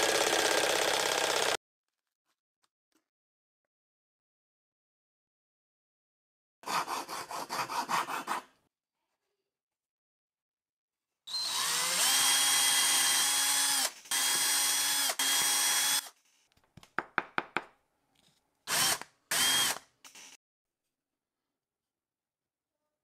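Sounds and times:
electric drill boring wood: 0.0 - 1.6, 11.3 - 16.1, 18.7 - 20.4.

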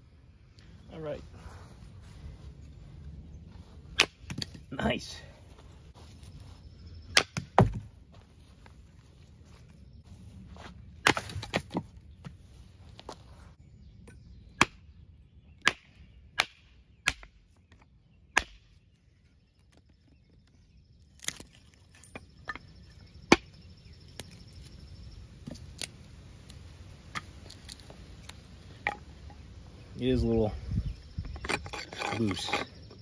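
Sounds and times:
tomahawk chopping wood: 4.0 - 4.6, 7.1 - 7.9, 11.0 - 11.9, 14.6 - 14.8, 15.6 - 18.8.

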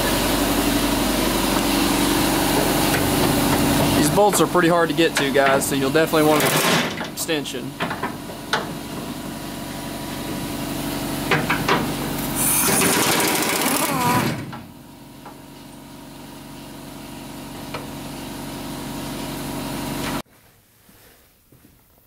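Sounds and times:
steady mechanical hum: 0.0 - 22.0
pneumatic wrench spinning bolt: 12.4 - 14.4.

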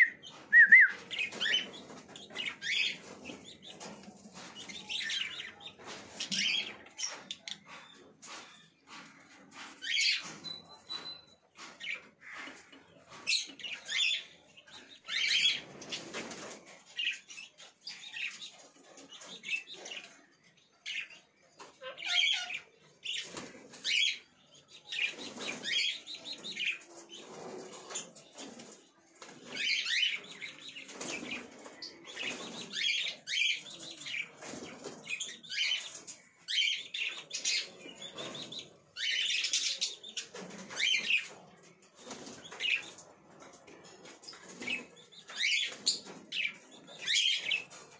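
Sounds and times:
birds flapping wings in cages: 0.0 - 8.4, 15.1 - 17.2, 23.0 - 24.1, 24.9 - 47.9
parakeets squawking and chirping: 1.0 - 3.8, 4.6 - 8.4, 9.0 - 16.0, 20.8 - 24.2, 29.5 - 41.4, 42.2 - 43.0, 44.2 - 47.8.

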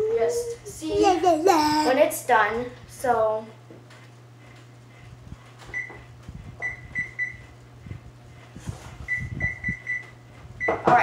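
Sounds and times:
steady low hum: 0.0 - 11.0
short high oven beeps: 5.7 - 6.0, 6.6 - 7.5, 9.0 - 10.9.

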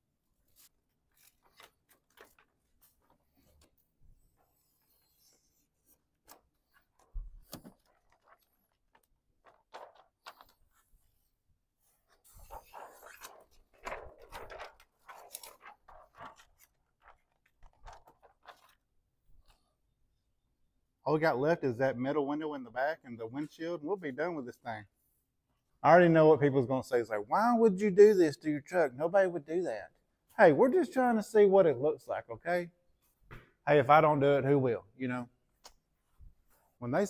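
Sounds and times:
plastic film crinkling: 0.5 - 3.7, 6.7 - 10.9, 12.3 - 19.0.

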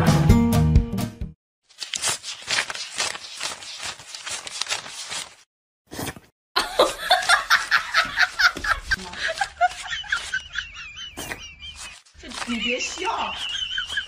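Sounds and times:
person laughing: 6.6 - 14.0.

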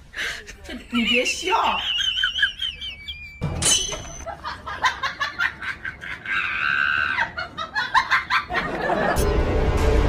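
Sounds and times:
woman laughing: 0.2 - 3.4, 4.0 - 9.2
woman shrieking: 6.2 - 7.4.

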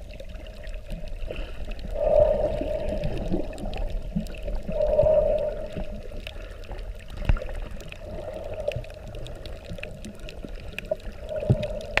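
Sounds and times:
muffled underwater noise: 0.3 - 12.0
faint clicks: 2.8 - 12.0.

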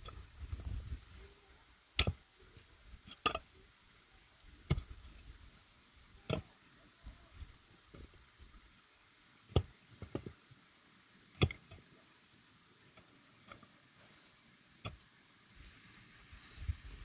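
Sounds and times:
pickaxe striking stony soil: 2.0 - 2.2, 4.6 - 5.0, 9.5 - 10.3, 11.4 - 11.8.

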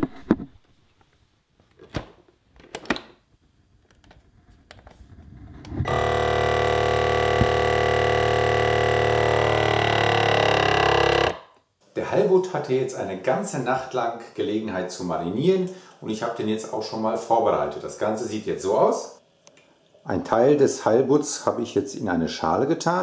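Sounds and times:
vacuum sealer pump humming: 5.7 - 11.4.

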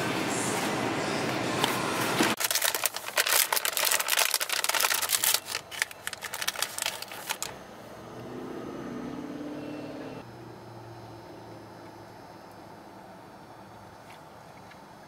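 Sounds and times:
plastic packaging crinkling: 2.3 - 7.5.

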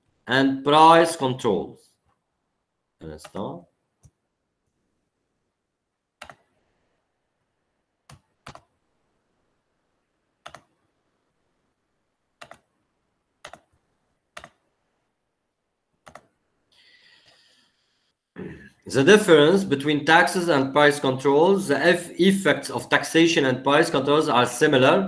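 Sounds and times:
computer keyboard clicks: 6.2 - 6.4, 8.1 - 8.7, 10.4 - 10.7, 12.4 - 12.6, 13.4 - 13.7, 16.0 - 16.3.

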